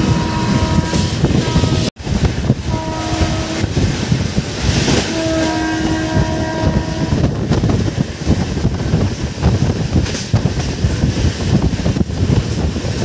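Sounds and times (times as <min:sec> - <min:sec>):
steady horn tone: 0:00.0 - 0:01.9, 0:02.7 - 0:03.8, 0:05.0 - 0:07.4
train wheels rumbling on rails: 0:00.0 - 0:13.0
wind buffeting microphone: 0:00.0 - 0:13.0.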